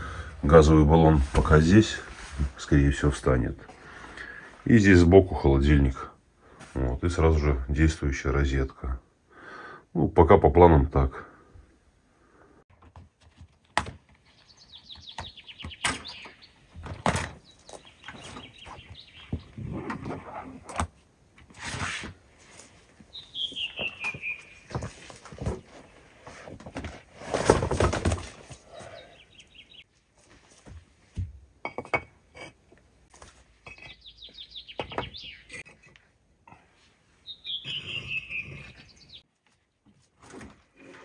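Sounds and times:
songbird singing: 0:14.1 - 0:20.5, 0:23.0 - 0:26.2, 0:28.6 - 0:29.9, 0:33.6 - 0:40.0.

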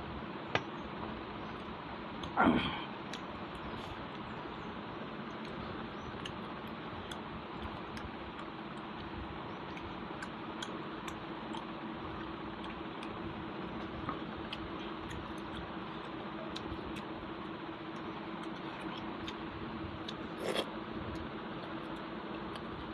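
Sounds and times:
faint hum: 0:00.0 - 0:22.9
chewing: 0:05.3 - 0:22.7.

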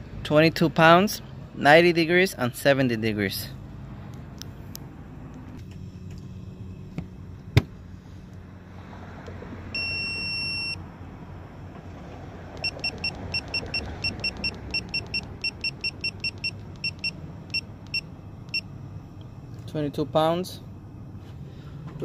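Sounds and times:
long beep: 0:09.8 - 0:10.8
short key-press beeps: 0:12.6 - 0:18.7.

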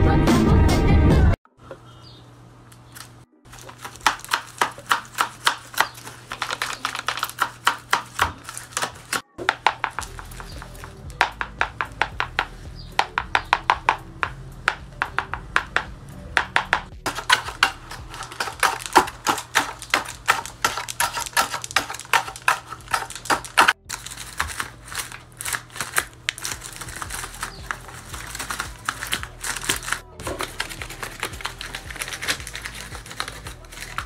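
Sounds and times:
paper puppet jaws clacking: 0:24.4 - 0:34.0.

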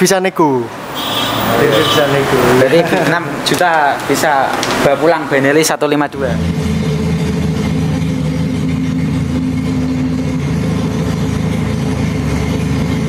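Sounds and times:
motorcycle engine idling: 0:06.3 - 0:13.0.

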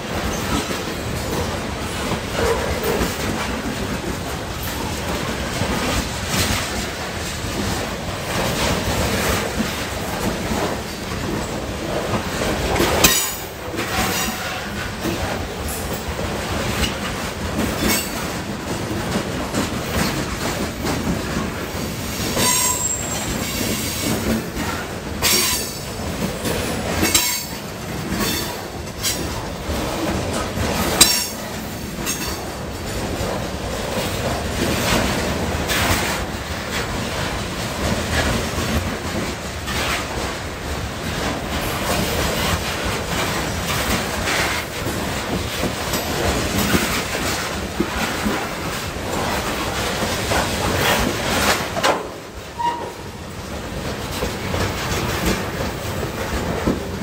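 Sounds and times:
train wheels rumbling on rail: 0:00.0 - 0:57.0
wheel squeal: 0:22.4 - 0:24.0, 0:52.6 - 0:53.0.

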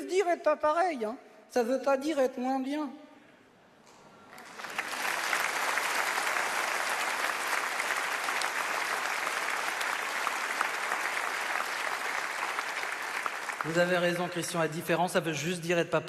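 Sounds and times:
large audience applauding: 0:04.3 - 0:14.7.

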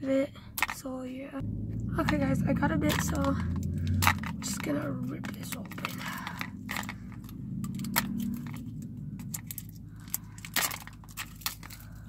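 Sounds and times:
low steady hum: 0:00.0 - 0:12.0
plastic packaging crinkling: 0:02.9 - 0:12.0.

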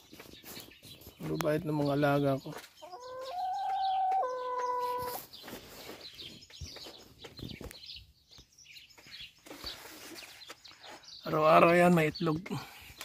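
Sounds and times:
hens pecking and scratching leaves: 0:00.0 - 0:12.0
hens chirping softly: 0:00.0 - 0:13.0
hen call: 0:02.8 - 0:05.2.

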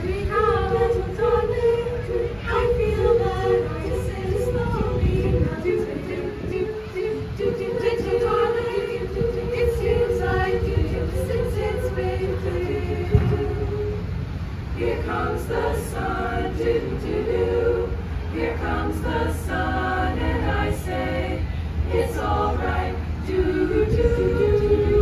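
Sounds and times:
low hum: 0:00.0 - 0:19.0
female choir singing: 0:00.0 - 0:25.0.

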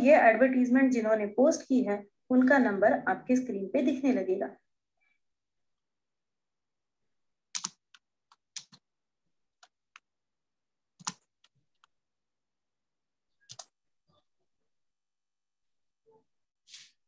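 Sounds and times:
keyboard keys clicking: 0:07.6 - 0:08.8.

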